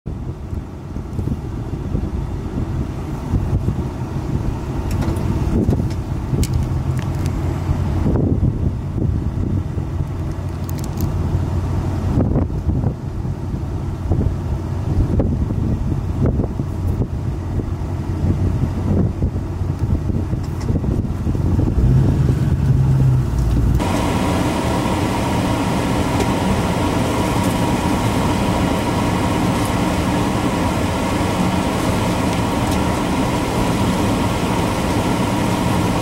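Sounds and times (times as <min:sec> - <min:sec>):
steady low rumble: 0:00.1 - 0:36.0
strong wind buffeting microphone: 0:00.1 - 0:36.0.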